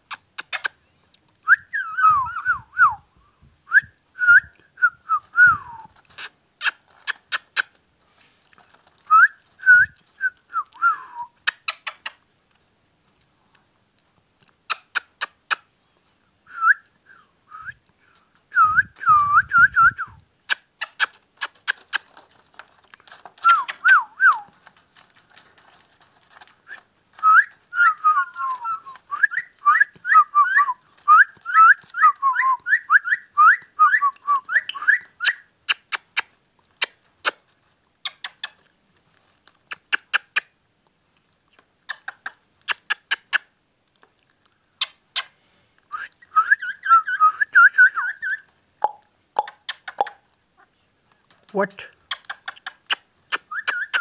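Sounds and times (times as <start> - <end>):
sharp clicks: 0.1 - 1.4, 48.8 - 50.2
parakeet whistling and chattering: 33.9 - 36.2, 46.2 - 48.4, 52.2 - 54.0.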